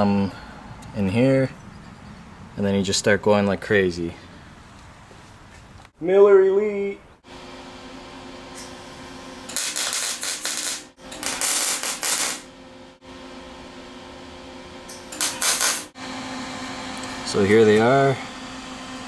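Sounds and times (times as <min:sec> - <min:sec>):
steady low hum: 0:06.9 - 0:19.0
welder arc crackling: 0:09.5 - 0:12.5, 0:14.9 - 0:16.0.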